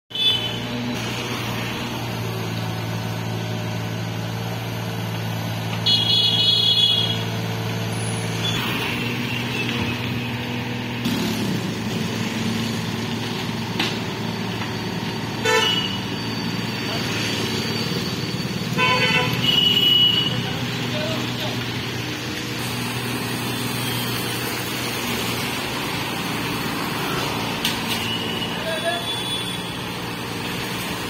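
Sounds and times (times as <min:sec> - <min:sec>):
excavator diesel engine running: 0:00.2 - 0:31.0
loud high-pitched tone: 0:15.4 - 0:20.6.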